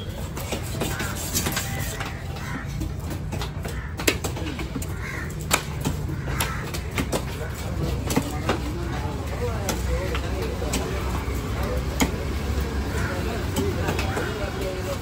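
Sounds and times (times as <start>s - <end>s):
low rumble of market noise: 0.0s - 15.0s
crows cawing: 0.8s - 10.6s, 12.8s - 14.7s.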